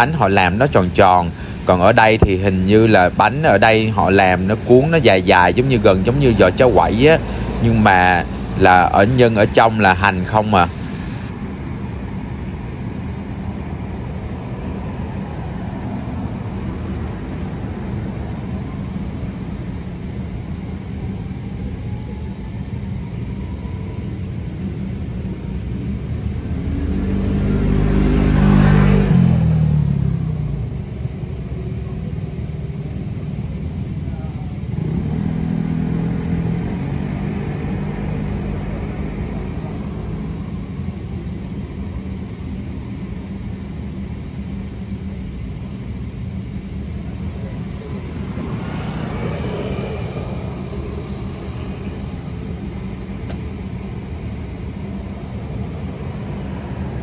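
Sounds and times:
vehicle passing close: 0:00.0 - 0:11.3, 0:25.9 - 0:30.9, 0:34.7 - 0:40.4, 0:46.8 - 0:57.0
low rumble of traffic: 0:00.0 - 0:57.0.

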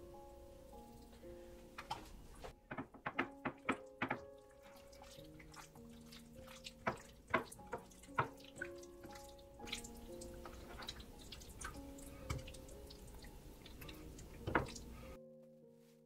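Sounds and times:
soft background music: 0:00.0 - 0:16.0
wet squishing of hands mixing: 0:03.2 - 0:15.2.

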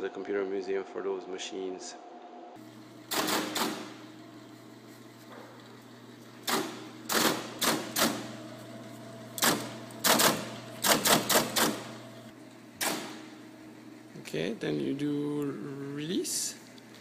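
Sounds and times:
steady low hum: 0:00.0 - 0:17.0
keypunch mechanical clacks: 0:09.4 - 0:11.9.

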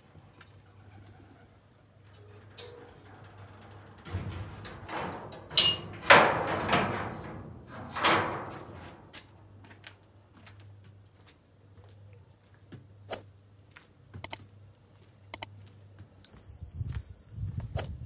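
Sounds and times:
sheet metal gate rattling: 0:02.5 - 0:09.1
metal gate clang: 0:04.0 - 0:09.0.

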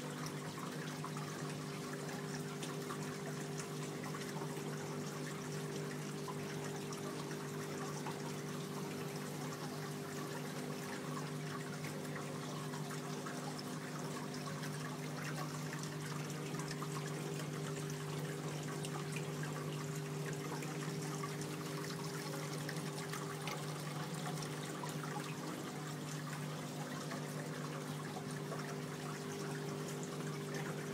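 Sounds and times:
fountain water trickling: 0:00.0 - 0:30.9.

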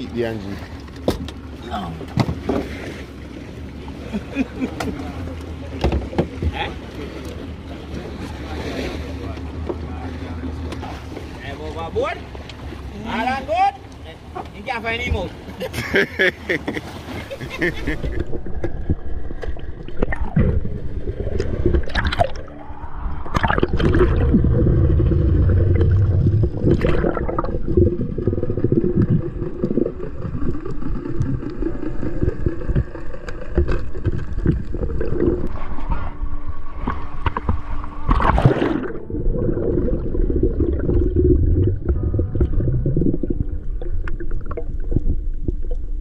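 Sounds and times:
water swishes: 0:00.0 - 0:46.0
underwater rumble and gurgling: 0:17.2 - 0:46.0
droning hum: 0:17.4 - 0:46.0.

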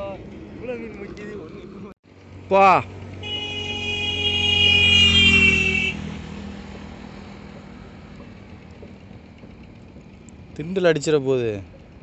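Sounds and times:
engine passing close by: 0:00.0 - 0:12.0.

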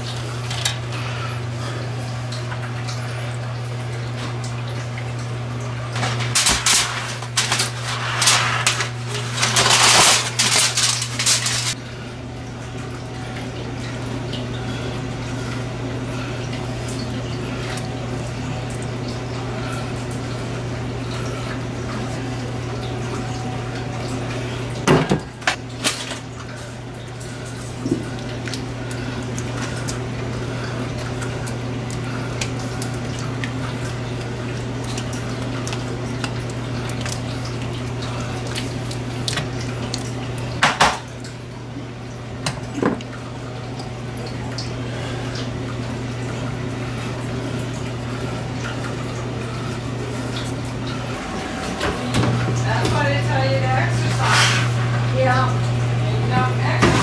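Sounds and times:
foil crinkling: 0:05.9 - 0:11.8
spoon scraping in foil: 0:06.0 - 0:11.8.

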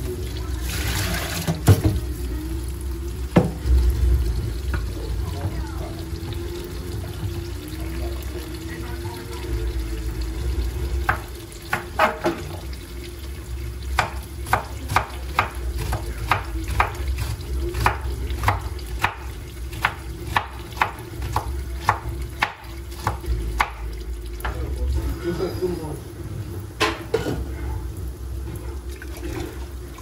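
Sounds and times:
low steady hum: 0:01.3 - 0:11.8.

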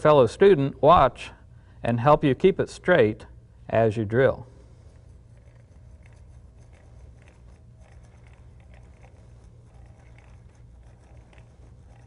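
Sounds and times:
low hum: 0:00.0 - 0:12.0
hand drill ticking and crunching: 0:05.4 - 0:12.0.

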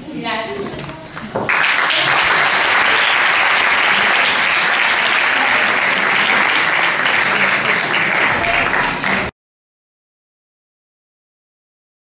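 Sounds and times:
audience applauding: 0:01.4 - 0:09.3.

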